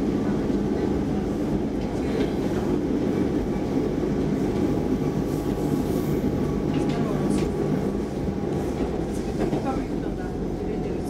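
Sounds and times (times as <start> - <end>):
metro train rumble from inside: 0.0 - 11.0.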